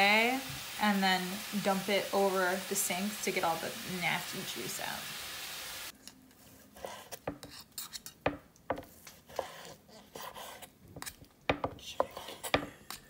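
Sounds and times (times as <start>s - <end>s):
knife knocking on wooden board: 8.3s - 8.9s, 11.5s - 12.8s.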